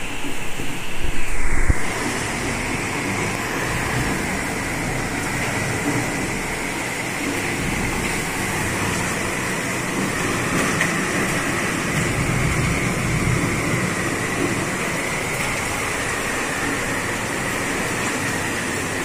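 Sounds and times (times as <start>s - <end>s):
torrential rain pouring: 0.0s - 19.0s.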